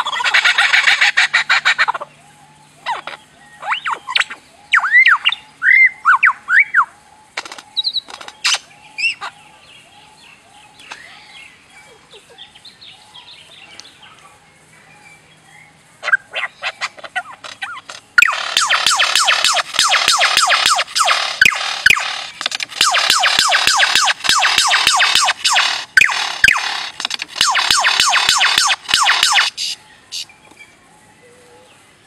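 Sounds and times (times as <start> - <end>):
bird chirps: 0.0 - 32.0
bird pulsed rattle: 7.3 - 8.7, 16.1 - 30.6
sharp clicks: 7.4 - 8.6, 17.4 - 29.8.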